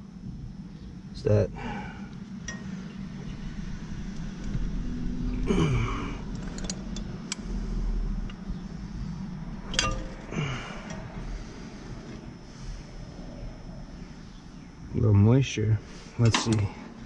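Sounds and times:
steady low rumble: 0:00.0 - 0:17.0
light metallic clicks and clinks: 0:02.4 - 0:02.8, 0:06.3 - 0:07.4, 0:09.7 - 0:11.0, 0:16.2 - 0:16.7.

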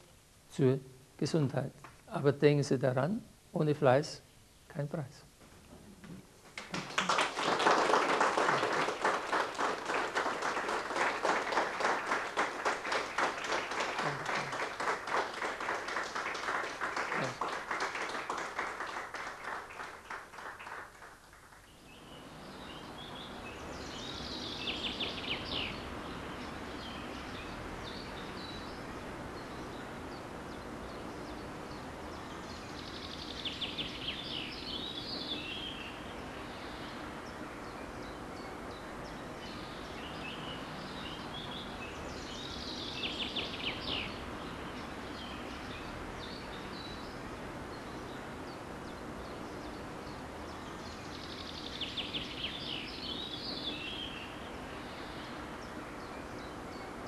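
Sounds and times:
birds chirping: 0:05.8 - 0:57.0
applause: 0:06.5 - 0:21.7.

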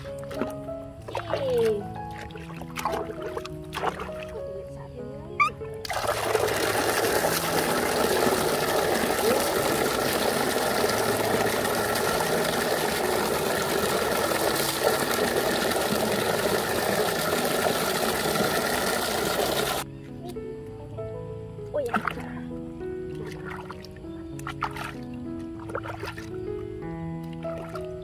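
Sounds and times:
water pouring into full tub: 0:00.0 - 0:04.4, 0:05.8 - 0:19.8.

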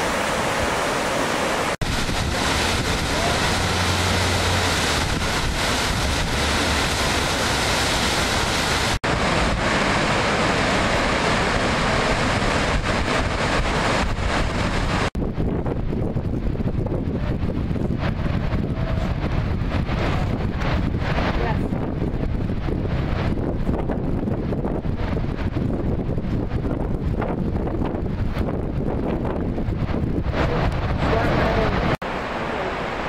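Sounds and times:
white water rushing: 0:00.0 - 0:15.2, 0:29.9 - 0:33.0
wind on microphone: 0:00.0 - 0:32.0.

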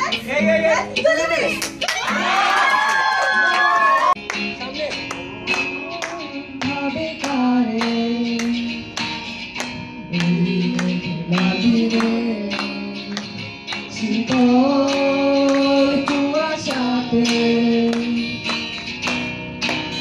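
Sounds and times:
acoustic guitar strumming: 0:04.2 - 0:20.0
women singing: 0:10.1 - 0:13.1, 0:13.9 - 0:18.2.

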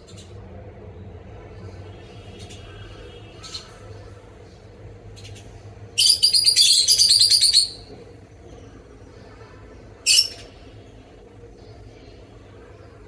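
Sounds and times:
lovebird chattering: 0:05.2 - 0:07.9, 0:10.0 - 0:10.6.

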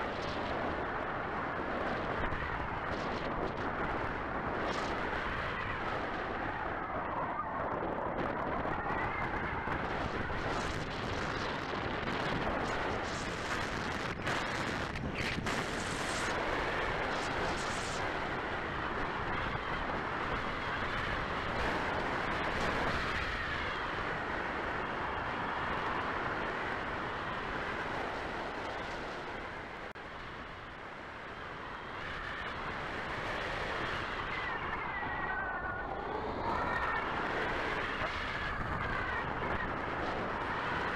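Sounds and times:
wind hiss on microphone: 0:00.0 - 0:40.9.

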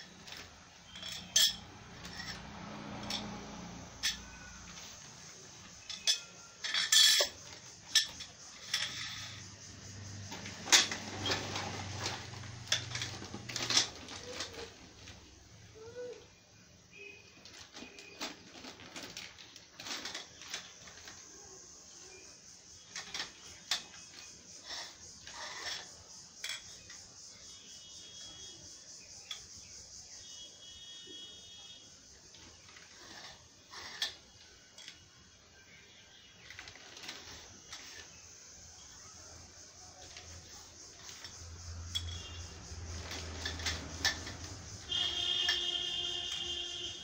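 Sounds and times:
metal tubes clinking: 0:00.0 - 0:15.2, 0:22.8 - 0:27.6, 0:39.9 - 0:47.0
plastic bag rustling: 0:10.2 - 0:15.3, 0:17.4 - 0:21.2, 0:36.4 - 0:38.2, 0:40.9 - 0:47.0.

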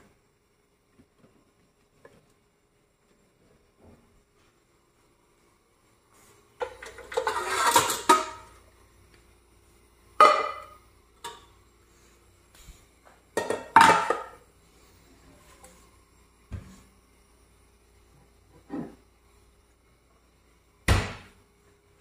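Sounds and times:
metal saucepans clattering: 0:06.6 - 0:08.5.

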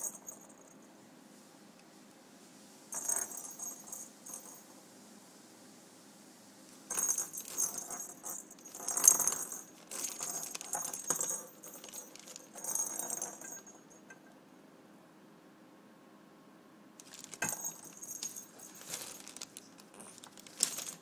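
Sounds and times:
cat toy bell jingling: 0:06.9 - 0:14.0, 0:17.0 - 0:21.0.

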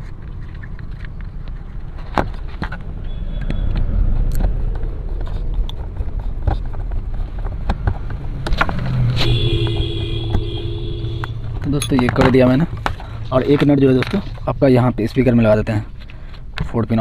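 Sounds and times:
steady low rumble: 0:00.0 - 0:08.6.

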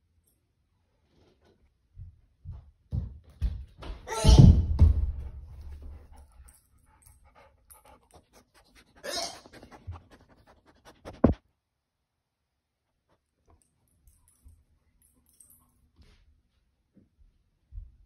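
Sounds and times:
dog panting and sniffing: 0:05.5 - 0:11.4.

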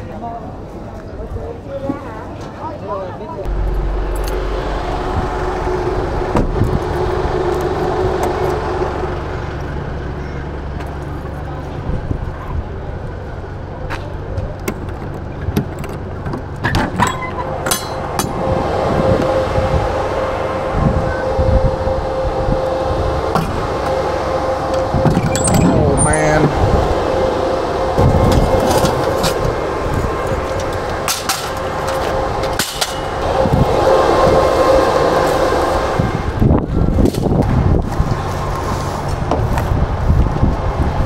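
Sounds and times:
truck engine humming: 0:03.5 - 0:11.9, 0:12.6 - 0:41.0
metallic clicks and clanks: 0:30.6 - 0:33.2.

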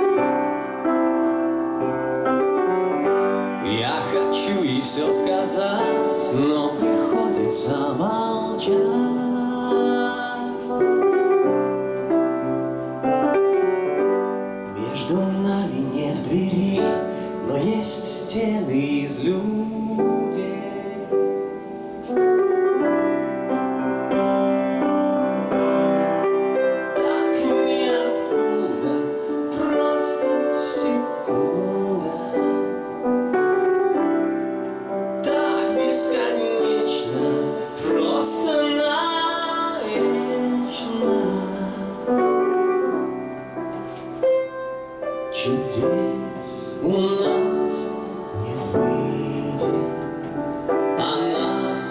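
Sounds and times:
grand piano: 0:00.0 - 0:51.9
man singing into a microphone: 0:03.2 - 0:11.3, 0:14.6 - 0:22.2, 0:25.6 - 0:33.3, 0:35.2 - 0:43.0, 0:45.3 - 0:51.9.

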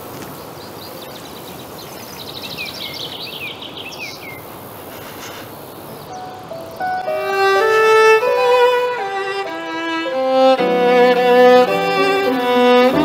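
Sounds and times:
background hiss: 0:00.0 - 0:13.0
bird chirping: 0:00.4 - 0:04.6, 0:05.7 - 0:10.6.

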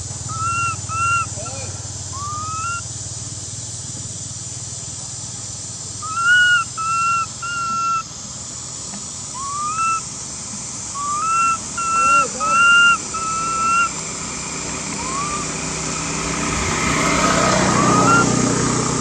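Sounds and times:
baby monkey crying: 0:00.3 - 0:01.5, 0:02.1 - 0:02.8, 0:06.0 - 0:08.0, 0:09.4 - 0:10.0, 0:11.0 - 0:14.0, 0:14.9 - 0:15.6, 0:17.5 - 0:18.5.

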